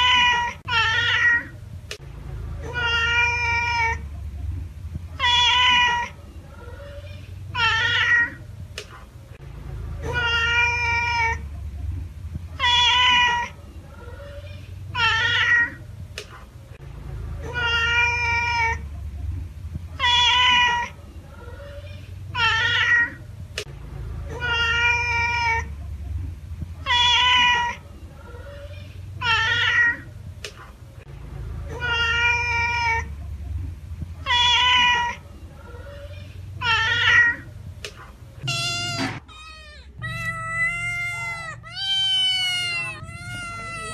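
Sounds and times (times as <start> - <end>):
cat meowing: 0.0 - 1.6, 2.6 - 4.0, 5.2 - 8.4, 10.0 - 11.4, 12.6 - 15.8, 17.4 - 18.8, 20.0 - 23.2, 24.4 - 25.7, 26.8 - 30.1, 31.7 - 33.1, 34.2 - 35.2, 35.9 - 37.5, 38.4 - 43.9.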